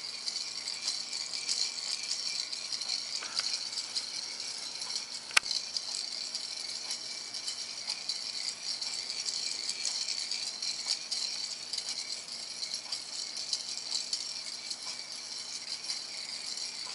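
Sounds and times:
sharp click: 5.3s - 5.5s.

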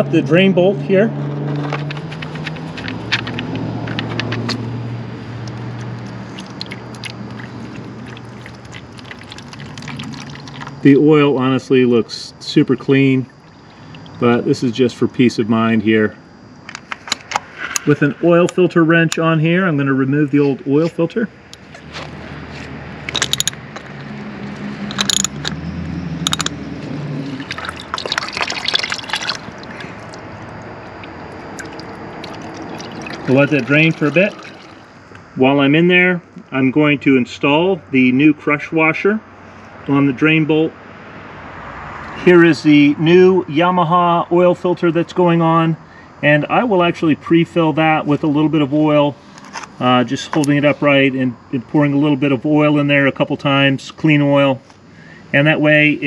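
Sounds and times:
oil pouring into drain pan: 6.0s - 10.8s, 27.3s - 30.2s, 31.2s - 34.9s
sharp metal clicks: 23.1s - 23.9s, 24.8s - 25.6s, 26.2s - 26.6s.

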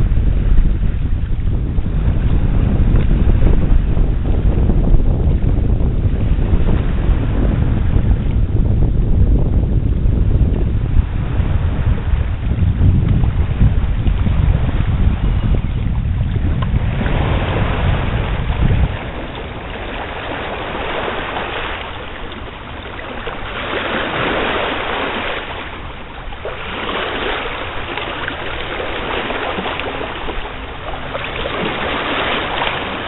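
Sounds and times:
wind buffeting microphone: 0.0s - 33.0s
small waves washing on rocks: 17.0s - 33.0s.

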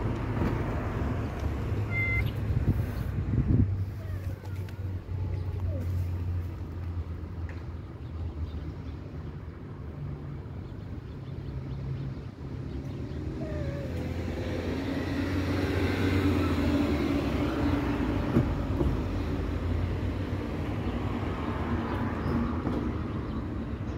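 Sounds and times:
vehicle engine humming: 0.0s - 23.9s
vehicle passing: 11.6s - 23.8s.

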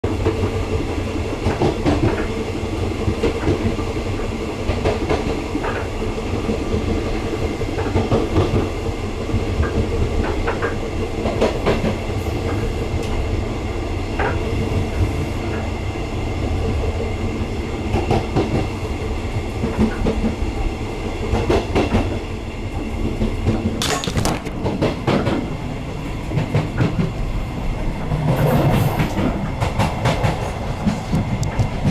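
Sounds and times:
train running gear rumble: 0.1s - 31.9s.

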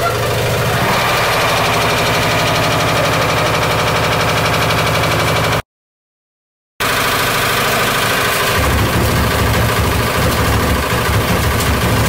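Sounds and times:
heavy low rumble: 0.4s - 5.6s, 8.6s - 12.0s
brick rattling in washing machine: 8.6s - 12.0s.

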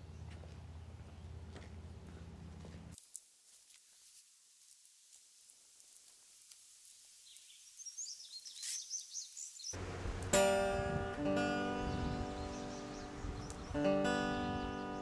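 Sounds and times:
faint bird chirps: 7.2s - 9.8s
acoustic guitar picked notes: 9.8s - 15.0s.

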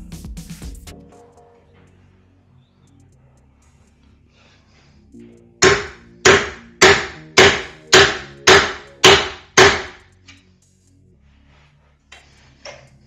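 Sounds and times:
hammer striking metal tool: 5.6s - 10.1s.

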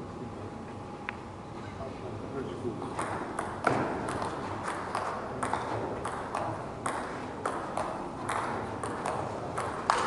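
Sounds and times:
table tennis ball clicking: 3.0s - 10.0s.

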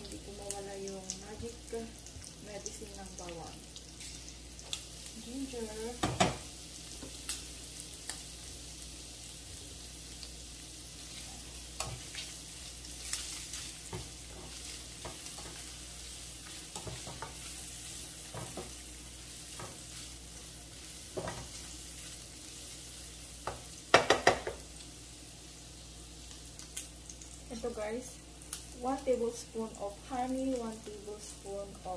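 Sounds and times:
food sizzling in a frying pan: 0.0s - 31.9s
spatula scraping and tapping pan: 16.4s - 17.6s, 18.2s - 18.8s, 19.5s - 20.0s, 21.0s - 21.7s.

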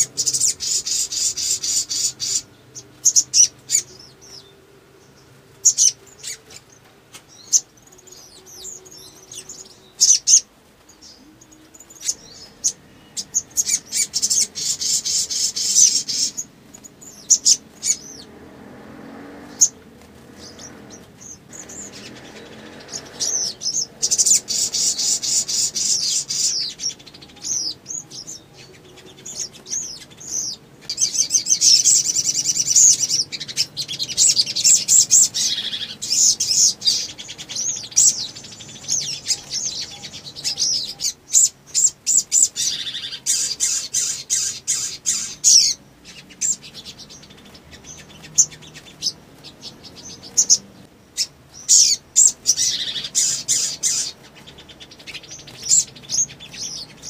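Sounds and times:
bird twittering trills: 0.0s - 57.0s.

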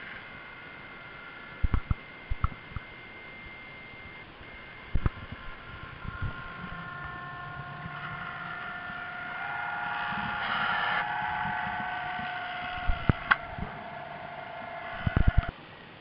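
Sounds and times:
underwater electric motor whine: 0.0s - 15.5s
sharp clicks and knocks: 1.6s - 2.9s, 14.9s - 15.5s.

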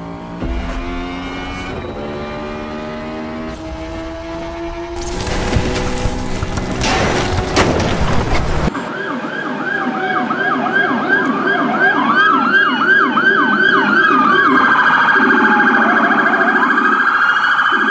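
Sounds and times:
toy police siren: 8.8s - 17.9s.

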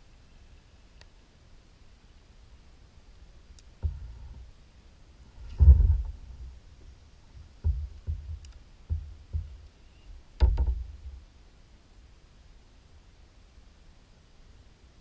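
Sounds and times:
faint clicks: 3.5s - 4.4s, 8.4s - 8.6s
hollow thumps through kayak hull: 3.8s - 4.2s, 5.4s - 6.4s, 7.4s - 9.6s, 10.4s - 11.2s.

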